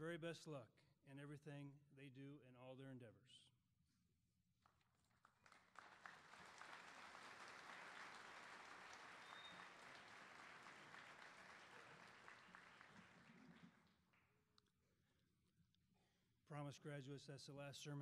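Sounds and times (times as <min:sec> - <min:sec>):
audience applauding: 0:04.7 - 0:14.1.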